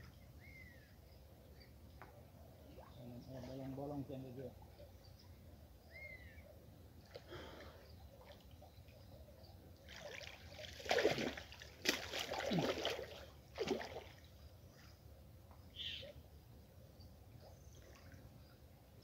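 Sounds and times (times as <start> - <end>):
faint water trickling: 0.0 - 19.0
water splashing and sloshing: 9.8 - 14.9.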